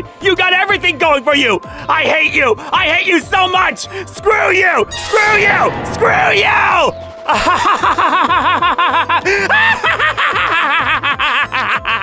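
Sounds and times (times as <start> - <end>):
background music: 0.0 - 12.0
man laughing hard: 7.2 - 12.0.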